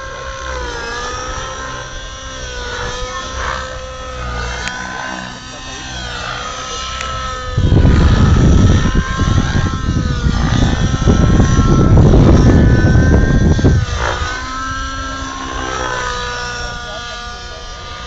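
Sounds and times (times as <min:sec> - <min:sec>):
model helicopter rotor whine: 0:00.0 - 0:18.0
loud low rumble: 0:07.0 - 0:17.0.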